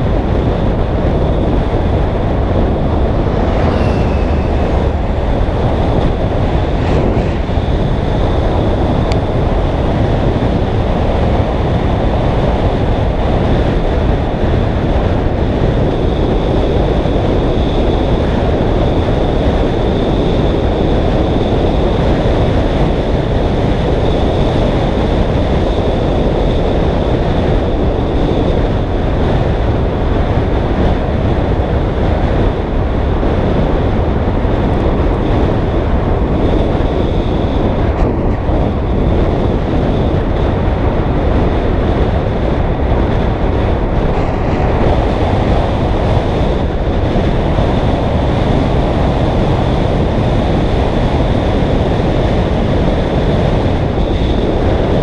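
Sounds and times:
wind rushing over microphone: 0:00.0 - 0:55.0
high-pitched whine: 0:01.0 - 0:10.7.

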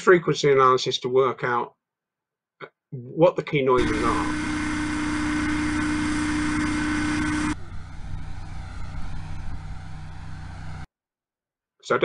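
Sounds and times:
softer lower hovercraft hum: 0:03.8 - 0:10.9.

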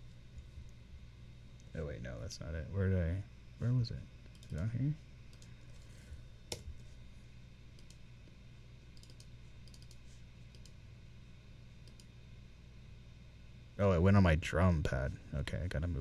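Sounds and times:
steady low hum: 0:00.0 - 0:16.0
mouse and keyboard clicks: 0:09.0 - 0:10.8.

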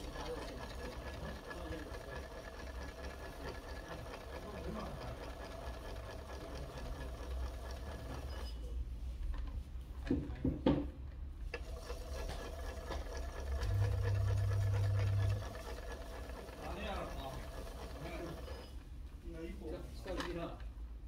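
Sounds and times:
toy motor humming: 0:11.7 - 0:18.8.

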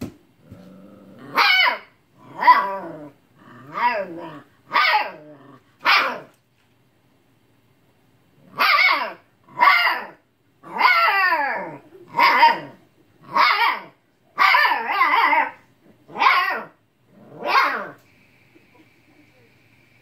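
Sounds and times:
puppy yowling barks: 0:01.2 - 0:03.0, 0:03.7 - 0:06.3, 0:08.5 - 0:16.8, 0:17.4 - 0:18.0.

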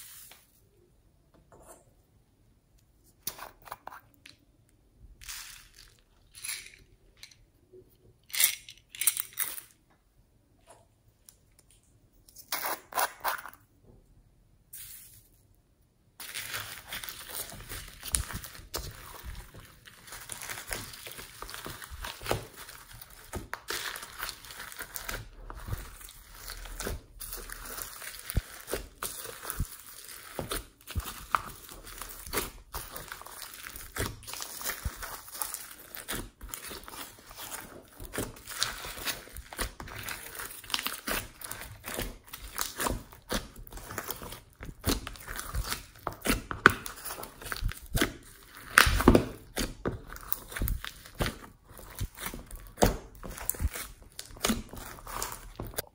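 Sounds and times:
slime crackling and squelching: 0:16.2 - 0:55.9.

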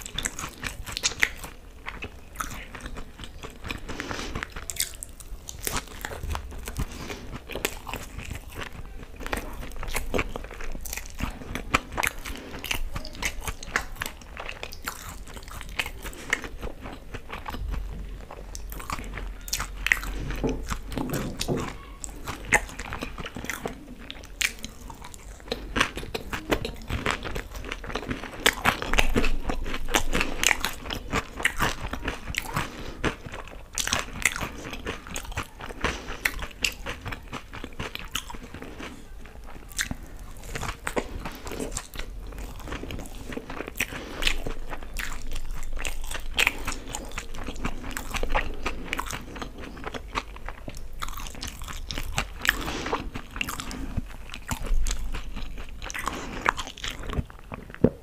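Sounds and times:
chewing and crunching fried food: 0:00.0 - 0:58.0.

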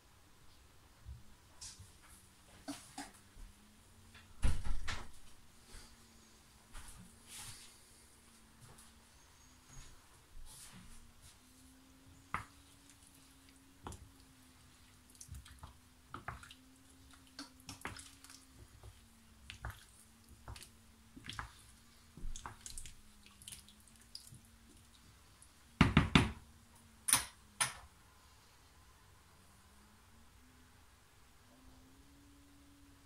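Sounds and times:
stew sloshing: 0:12.9 - 0:25.3.

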